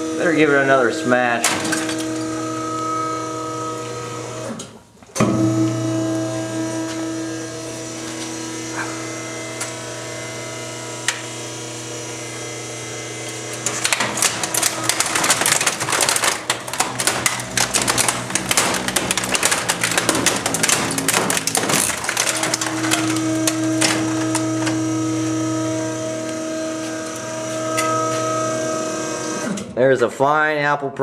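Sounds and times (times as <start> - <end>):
trash compactor motor humming: 0.0 - 0.5, 1.4 - 29.7
plastic casing cracking and crunching: 13.0 - 28.7.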